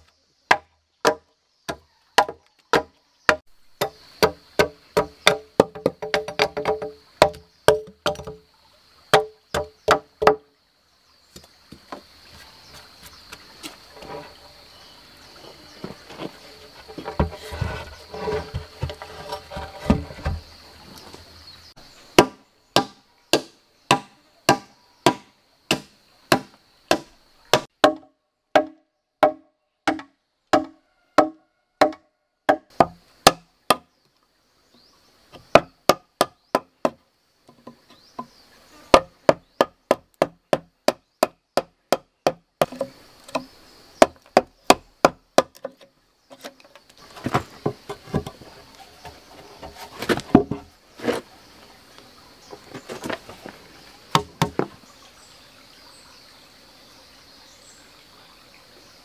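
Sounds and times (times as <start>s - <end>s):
mallet striking chisel into wood: 0.5s - 8.4s, 9.1s - 10.4s, 22.2s - 33.8s, 35.4s - 37.0s, 38.9s - 45.8s, 54.1s - 54.7s.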